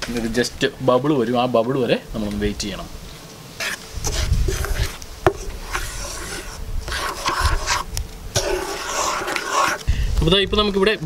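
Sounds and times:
spatula scraping a frying pan: 0:03.6 - 0:09.9.

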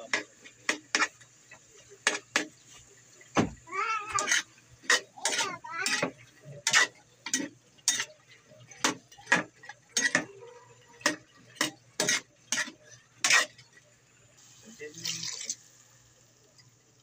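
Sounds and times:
spatula scraping metal frying pan: 0:04.1 - 0:13.8.

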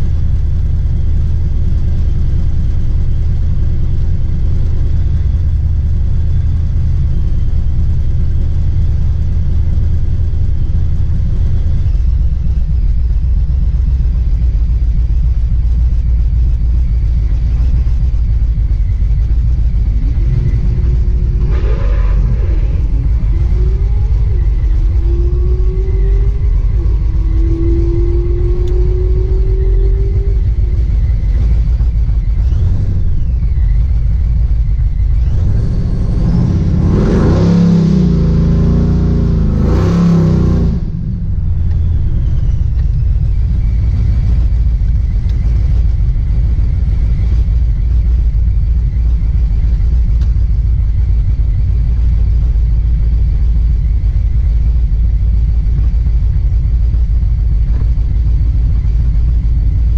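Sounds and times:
drag car engine idling: 0:00.0 - 0:59.9
engine revving: 0:16.8 - 0:45.8.

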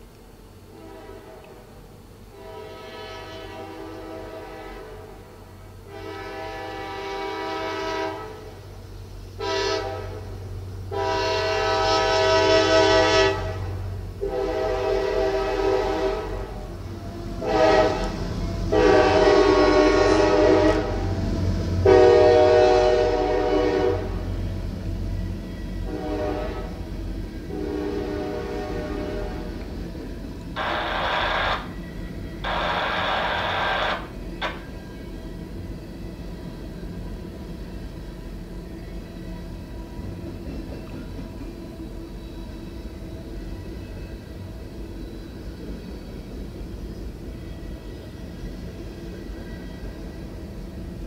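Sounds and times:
locomotive rumble: 0:00.0 - 0:51.0
locomotive air horn blasts: 0:00.7 - 0:01.7, 0:02.3 - 0:08.6, 0:09.4 - 0:21.2, 0:21.8 - 0:24.3, 0:25.8 - 0:26.8, 0:27.4 - 0:29.6, 0:30.6 - 0:31.7, 0:32.4 - 0:34.6.

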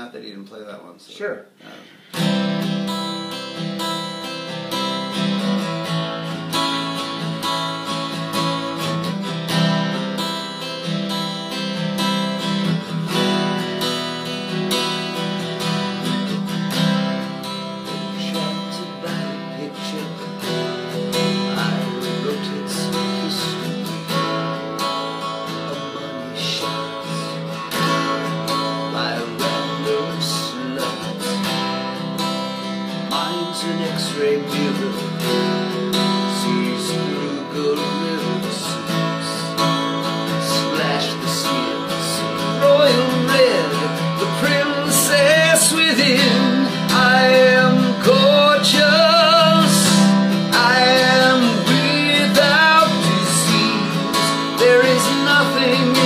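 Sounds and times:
acoustic guitar strumming: 0:01.4 - 0:56.0
man singing: 0:13.0 - 0:32.2, 0:32.8 - 0:56.0.

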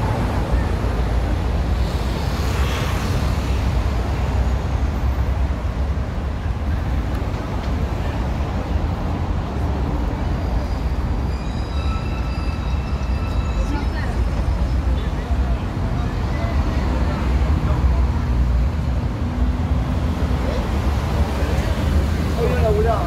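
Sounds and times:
traffic rumble: 0:00.0 - 0:23.0
faint high-pitched squeal: 0:10.5 - 0:14.9.

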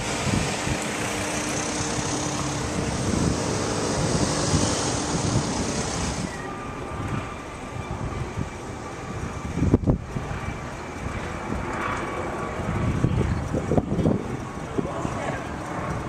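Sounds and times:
passing vehicle rushing: 0:00.0 - 0:06.6.

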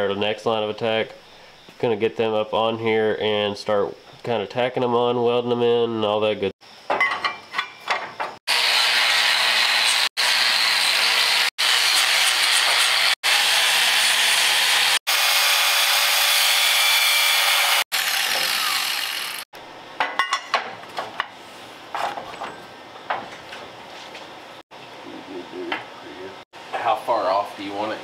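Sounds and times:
metal parts knocking and clinking: 0:06.9 - 0:08.4
angle grinder grinding metal: 0:08.5 - 0:19.5.

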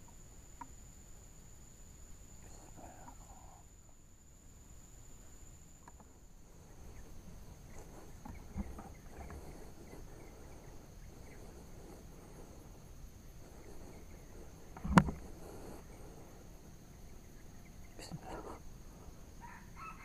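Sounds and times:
high-pitched insect drone: 0:00.0 - 0:20.0
small knocks: 0:14.8 - 0:15.2.

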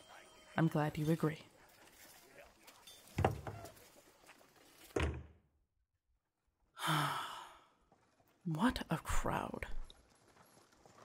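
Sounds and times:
door shutting: 0:04.9 - 0:05.4.

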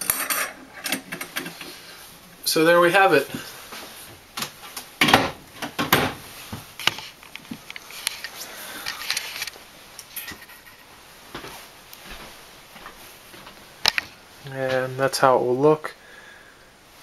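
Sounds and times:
camera handling noise: 0:06.8 - 0:10.2.

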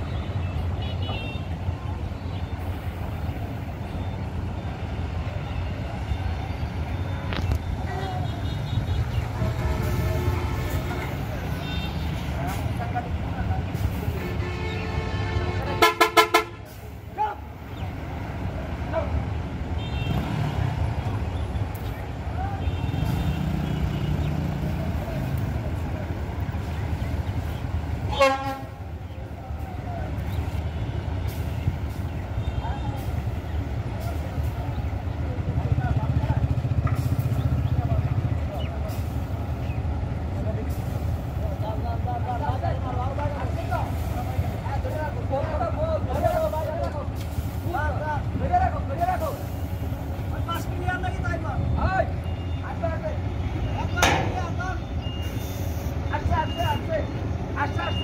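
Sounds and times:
bus diesel engine rumbling: 0:00.0 - 0:58.0
bus horn blast: 0:07.9 - 0:12.3, 0:14.1 - 0:16.9, 0:19.8 - 0:20.7, 0:22.6 - 0:24.2, 0:28.1 - 0:28.8.

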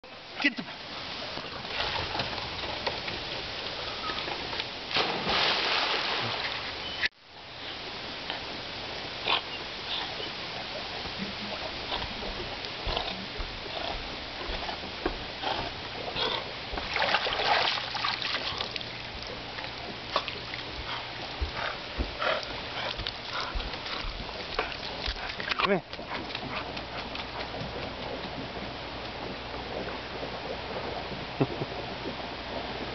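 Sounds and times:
water splashing and sloshing: 0:00.7 - 0:07.1, 0:07.9 - 0:32.9.

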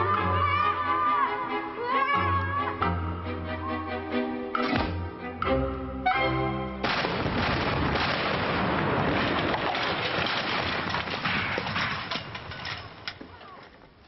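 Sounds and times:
large explosion with crackling: 0:06.8 - 0:12.5.

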